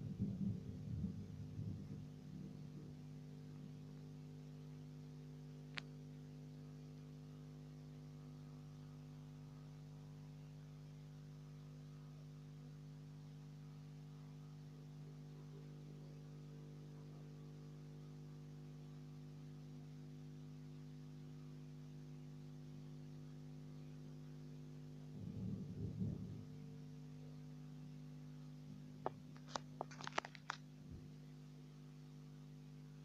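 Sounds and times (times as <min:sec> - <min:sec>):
faint electrical hum: 0:00.0 - 0:33.0.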